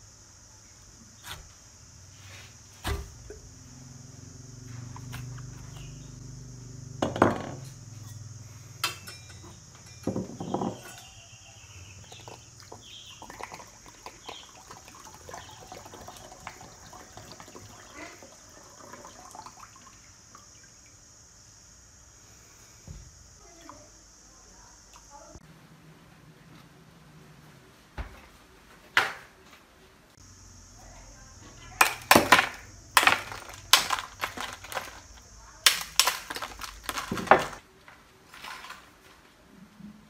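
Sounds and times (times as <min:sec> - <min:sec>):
water trickling into bowl: 0:12.0 - 0:21.0.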